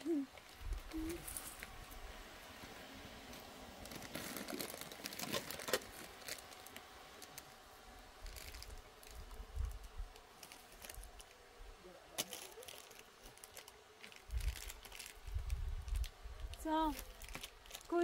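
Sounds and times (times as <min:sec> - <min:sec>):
cloth pouch rustling: 0:03.3 - 0:06.7.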